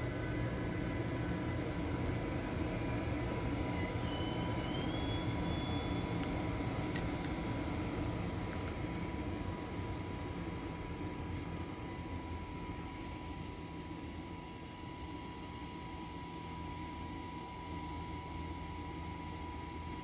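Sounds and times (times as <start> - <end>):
thin steady whine: 0.0 - 20.0
faint rising whistle: 3.7 - 6.2.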